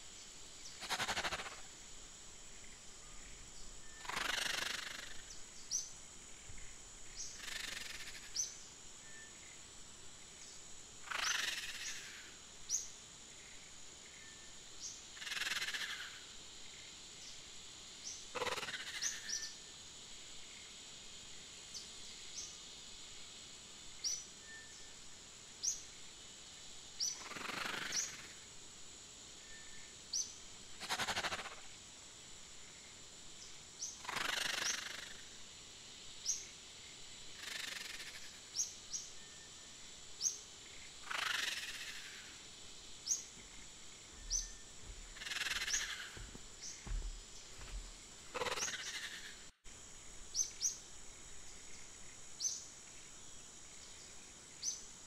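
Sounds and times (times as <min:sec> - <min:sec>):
steady high hiss: 0:00.0 - 0:55.0
bird chirping: 0:43.0 - 0:49.5.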